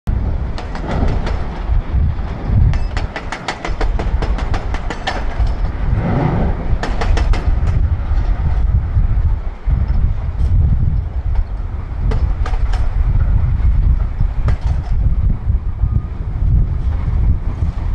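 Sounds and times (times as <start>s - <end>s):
heavy diesel machinery rumbling: 0.1s - 17.9s
rapid sharp clacks: 2.8s - 5.8s.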